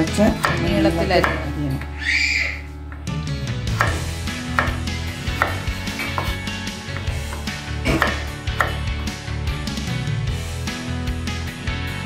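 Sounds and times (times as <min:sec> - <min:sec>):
background music: 0:00.0 - 0:12.0
knife slicing vegetables: 0:03.7 - 0:06.4.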